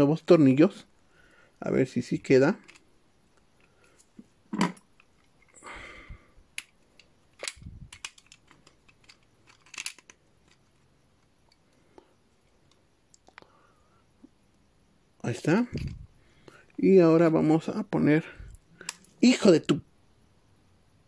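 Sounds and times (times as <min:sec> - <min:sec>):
small parts clicking and tapping: 0:02.5 - 0:05.6, 0:06.5 - 0:13.5, 0:18.4 - 0:19.2.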